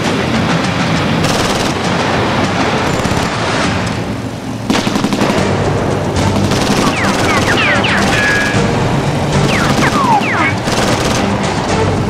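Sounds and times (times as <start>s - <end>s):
machine-gun fire bursts: 1.2s - 3.8s, 4.7s - 8.8s, 9.4s - 11.5s
steady low rumble: 4.0s - 12.0s.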